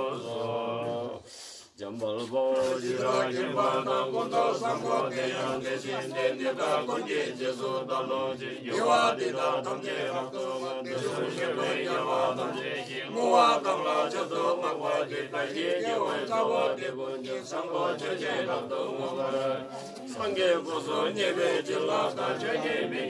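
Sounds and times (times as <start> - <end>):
men chanting prayers: 0.0 - 23.0.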